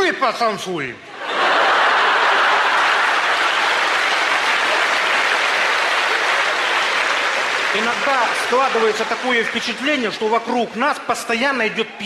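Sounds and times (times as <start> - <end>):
audience laughing: 1.1 - 9.2
audience applauding: 1.3 - 10.6.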